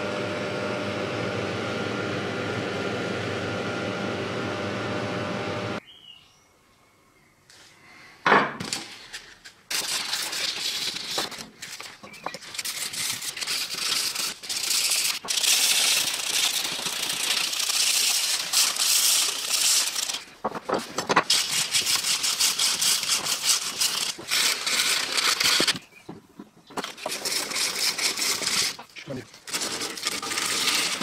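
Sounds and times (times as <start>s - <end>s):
sandpaper rubbing on wood: 12.4s - 20.2s, 21.3s - 25.8s, 27.0s - 28.8s.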